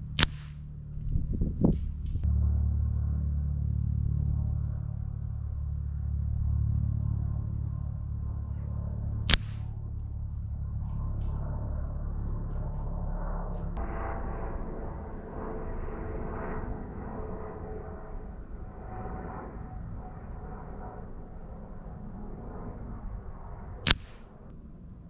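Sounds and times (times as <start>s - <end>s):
air rifle shot: 0.0s - 0.7s, 9.3s - 9.8s, 23.8s - 24.4s
wind rumble on microphone: 0.0s - 25.0s.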